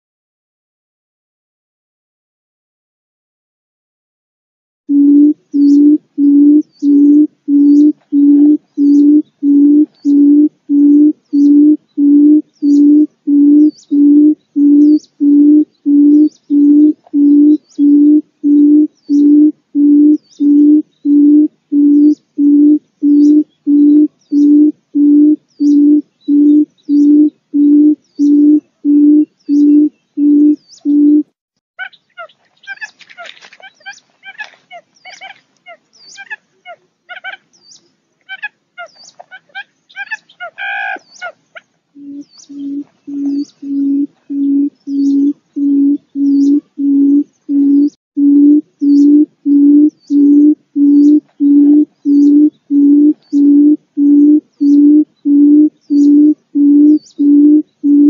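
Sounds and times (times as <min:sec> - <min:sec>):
faint high chirps: 0:04.9 - 0:31.2, 0:41.0 - 0:58.0
quail calling: 0:04.9 - 0:31.2, 0:31.8 - 0:58.0.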